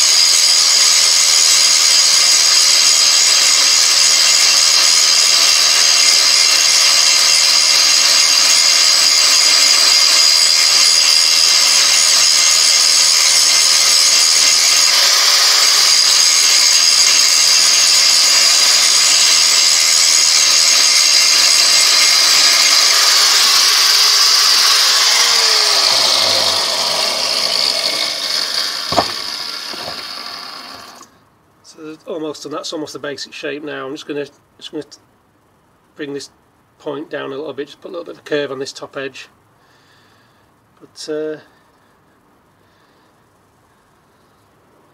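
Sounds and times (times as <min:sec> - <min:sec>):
angle grinder grinding steel: 0:00.0 - 0:31.1
sharp knock: 0:28.9 - 0:30.1.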